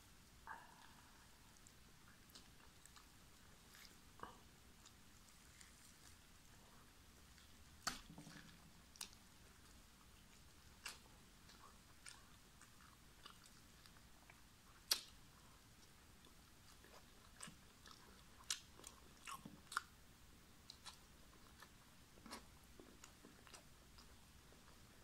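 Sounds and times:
person chewing food: 0:00.5 - 0:20.0, 0:20.6 - 0:25.0
wet mouth clicks and smacks: 0:14.8 - 0:15.2.

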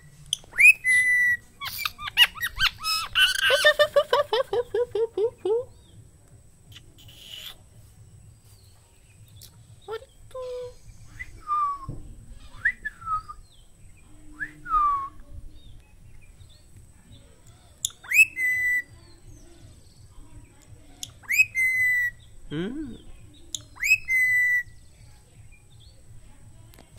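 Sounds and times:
parakeet whistling: 0:00.3 - 0:03.7, 0:17.8 - 0:18.9, 0:21.2 - 0:22.2, 0:23.8 - 0:24.7.

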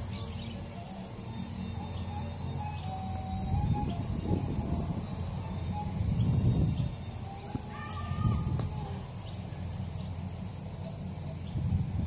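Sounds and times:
pitched bird call: 0:00.0 - 0:10.2
bird chirps: 0:00.0 - 0:11.7
thin high drone: 0:00.0 - 0:12.0
wind rumble on microphone: 0:03.1 - 0:09.1, 0:11.4 - 0:12.0.

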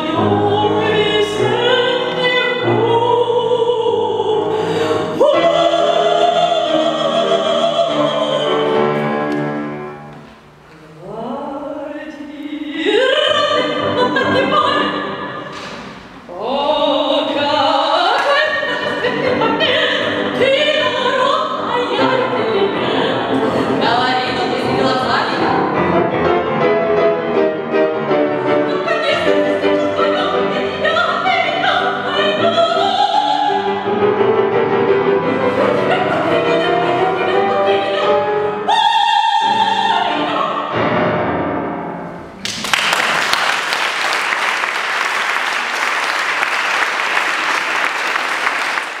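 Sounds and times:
woman singing art song: 0:00.0 - 0:09.5, 0:10.7 - 0:25.8, 0:28.4 - 0:33.9, 0:35.3 - 0:40.8
grand piano accompaniment: 0:00.0 - 0:11.0, 0:12.6 - 0:49.0
audience applause: 0:42.4 - 0:49.0.

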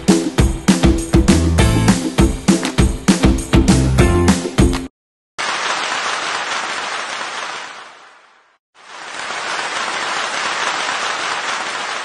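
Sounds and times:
applause: 0:05.4 - 0:12.0.

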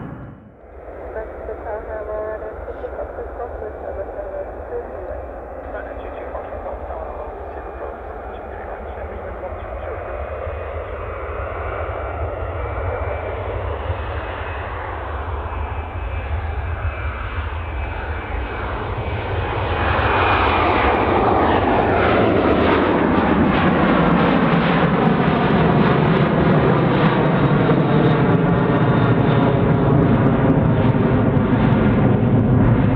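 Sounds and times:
falling jet whine: 0:00.0 - 0:12.4
jet engines at takeoff: 0:00.0 - 0:32.9.

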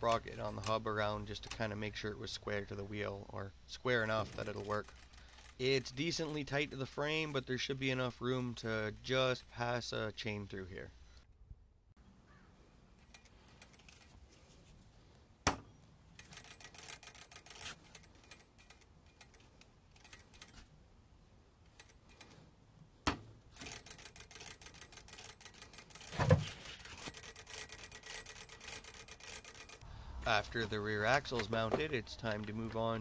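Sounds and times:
freewheel ticking: 0:03.9 - 0:10.2, 0:23.5 - 0:29.8.

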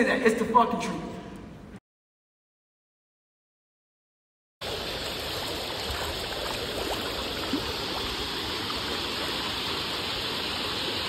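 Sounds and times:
creek water rushing over rock: 0:04.6 - 0:11.0.

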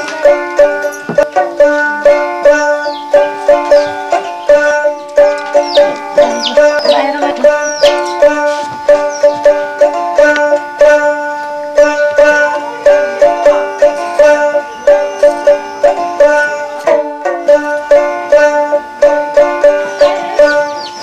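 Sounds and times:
plucked string instrument: 0:00.0 - 0:21.0.

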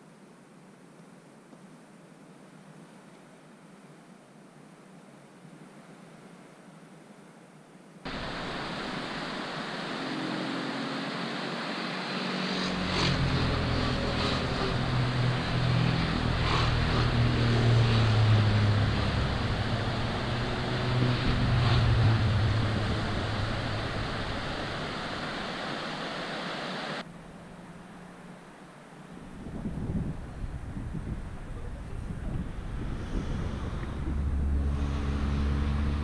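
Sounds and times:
stream rushing over rocks: 0:08.1 - 0:27.1
low rumble: 0:12.7 - 0:26.0, 0:29.6 - 0:36.0.

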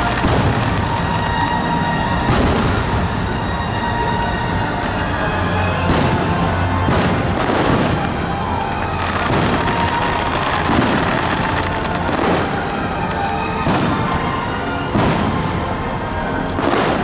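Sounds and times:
fireworks bursting: 0:00.0 - 0:17.0
music playing: 0:00.0 - 0:17.0.

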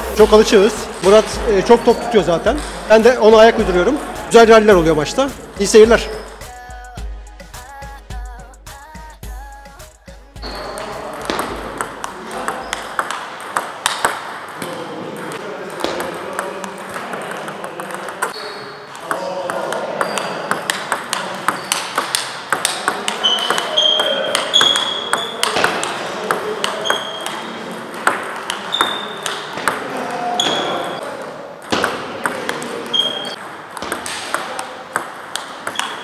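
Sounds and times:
table tennis balls clicking: 0:10.4 - 0:36.0
brief high squeaks: 0:28.7 - 0:29.2, 0:32.9 - 0:33.4.

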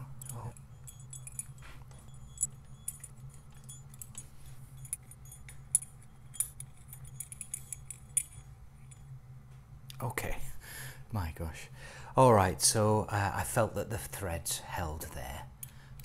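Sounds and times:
small metallic clicks and clinks: 0:00.0 - 0:09.2
low steady hum: 0:00.0 - 0:16.0.

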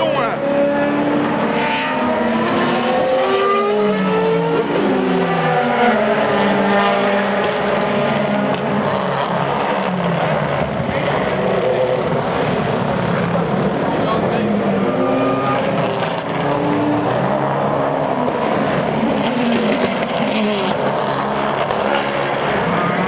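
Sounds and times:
racing car engines accelerating: 0:00.0 - 0:23.0.

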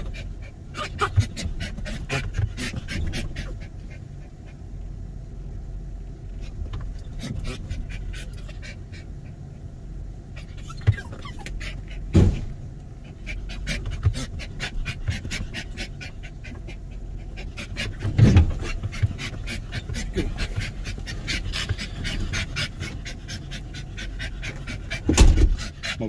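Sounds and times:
dog panting hard: 0:00.0 - 0:04.8, 0:06.3 - 0:09.5, 0:10.3 - 0:26.0
dull thumps: 0:12.1 - 0:12.6, 0:17.6 - 0:23.2, 0:24.4 - 0:25.7.

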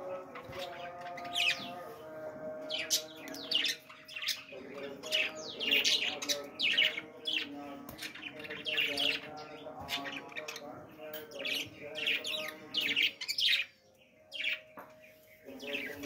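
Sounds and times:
budgerigars chirping: 0:02.7 - 0:14.7.

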